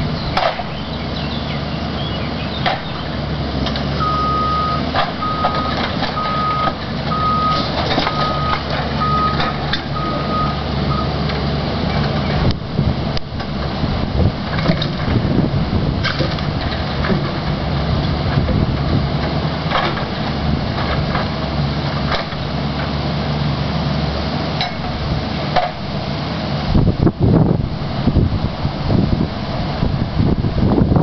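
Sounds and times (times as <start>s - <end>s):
diesel engine running: 0.0s - 31.0s
machine knocks and clanks: 16.0s - 21.4s.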